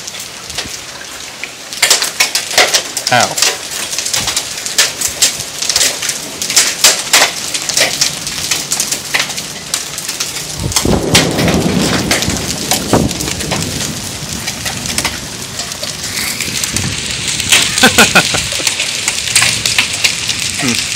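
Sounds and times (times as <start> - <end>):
hail and heavy rain pelting ground: 0.0 - 20.9
low rumble: 10.5 - 20.9.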